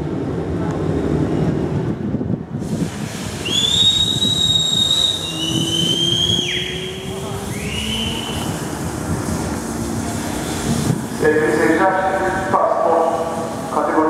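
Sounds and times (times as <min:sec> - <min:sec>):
high engine whine: 0:03.4 - 0:14.0.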